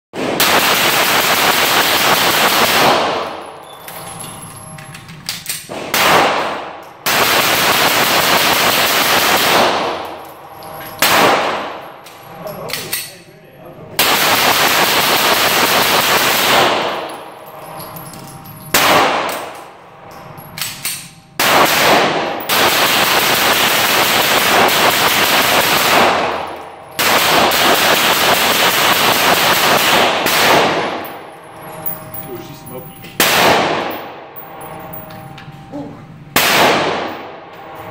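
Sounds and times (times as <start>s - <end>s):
pistol firing rapidly indoors: 0.2s - 3.6s, 5.7s - 10.2s, 11.0s - 12.0s, 14.0s - 17.4s, 18.7s - 19.7s, 21.4s - 31.2s, 33.2s - 34.2s, 36.3s - 37.4s.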